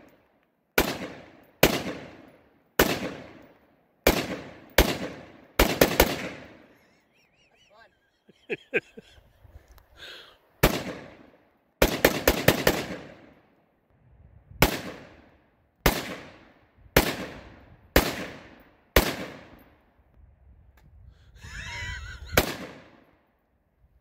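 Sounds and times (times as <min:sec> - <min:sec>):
rifle shots echoing: 0:00.8 - 0:06.7, 0:10.6 - 0:13.4, 0:14.6 - 0:19.8, 0:22.4 - 0:23.1.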